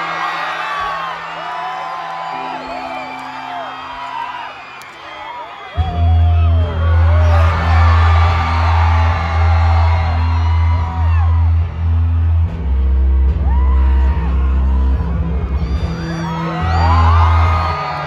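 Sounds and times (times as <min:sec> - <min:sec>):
audience screaming and whooping: 0:00.0 - 0:18.0
deep held bass notes: 0:05.8 - 0:18.0
rock band playing: 0:05.8 - 0:18.0.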